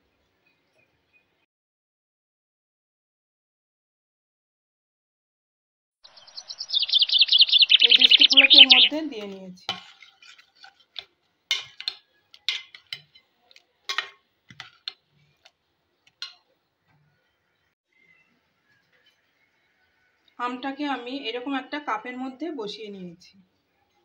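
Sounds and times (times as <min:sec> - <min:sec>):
rapid high chirping: 0:06.0 - 0:09.0
spoon clinking in steel pot: 0:11.5 - 0:13.3, 0:13.9 - 0:15.0.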